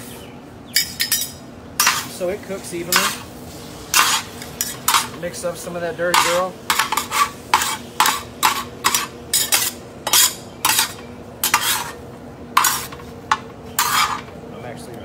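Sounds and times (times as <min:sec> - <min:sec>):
steady low hum: 0:00.0 - 0:15.0
utensil scraping wok: 0:00.8 - 0:14.4
meat sizzling: 0:01.8 - 0:12.0.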